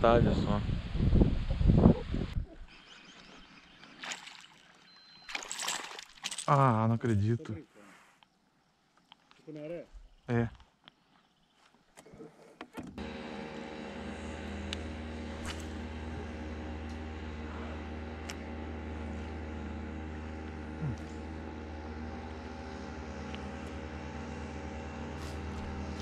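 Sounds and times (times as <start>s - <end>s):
steady motor hum: 12.9s - 26.0s.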